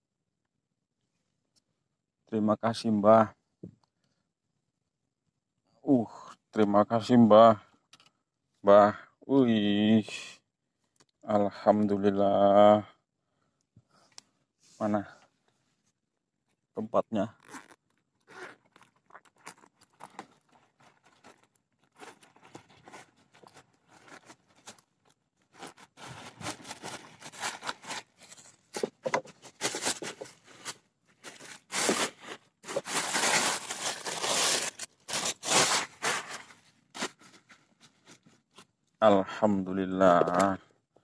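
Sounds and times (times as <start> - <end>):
handling scraping and rustling: 17.5 - 38.8.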